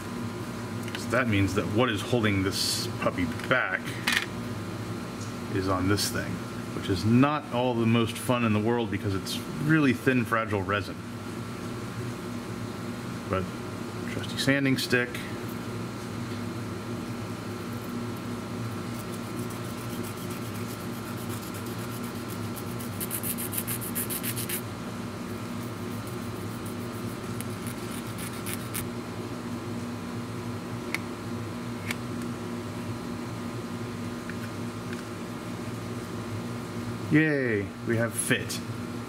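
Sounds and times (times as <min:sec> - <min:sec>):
air conditioner whirring: 0:00.0 - 0:39.0
resin part rubbed on sanding pad: 0:18.9 - 0:24.6, 0:25.6 - 0:28.8.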